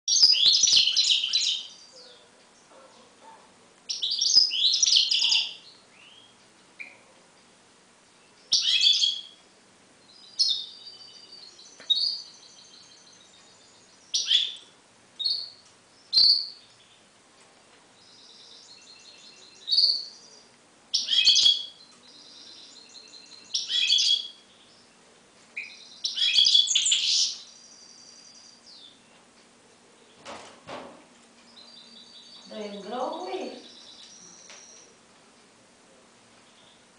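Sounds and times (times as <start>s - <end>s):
finch chirping and twittering: 0.1s - 7.1s, 8.1s - 9.4s, 10.0s - 17.1s, 17.9s - 29.3s, 31.2s - 35.0s.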